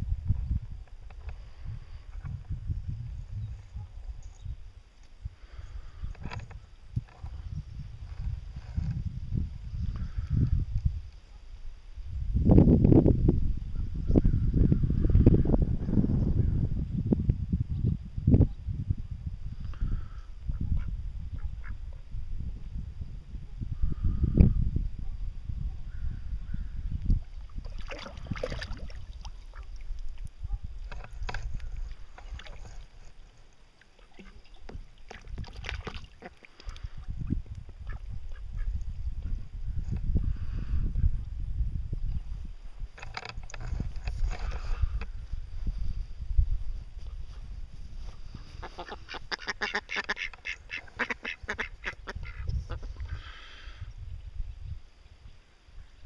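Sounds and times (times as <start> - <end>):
ducks splashing in water: 27.2 - 30.2, 33.8 - 37.1
ducks quacking: 48.4 - 53.4.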